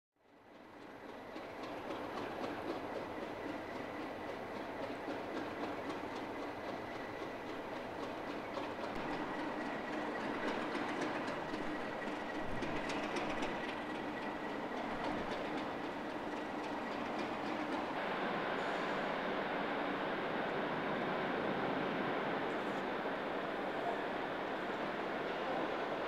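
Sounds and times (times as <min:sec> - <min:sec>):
diesel locomotive engine idling: 0:00.3 - 0:26.0.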